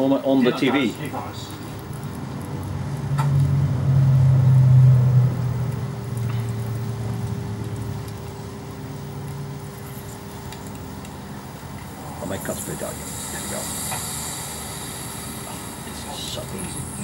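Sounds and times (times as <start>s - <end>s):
transformer humming loudly: 11.0s - 17.0s.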